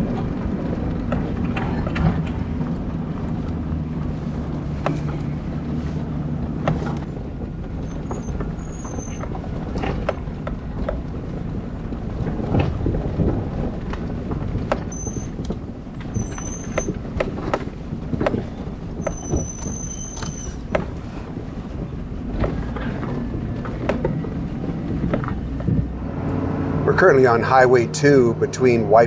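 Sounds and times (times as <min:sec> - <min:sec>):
car engine hum: 0:00.0 - 0:29.0
tyres rumbling on dirt: 0:00.0 - 0:29.0
knocks and rattles: 0:06.4 - 0:25.9
short high squeaks: 0:07.8 - 0:09.3, 0:14.9 - 0:15.4, 0:16.1 - 0:17.0, 0:19.0 - 0:20.7.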